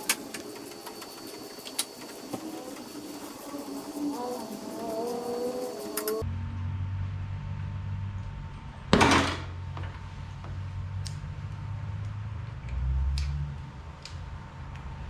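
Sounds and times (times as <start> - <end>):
steady low hum: 0.0 - 8.9.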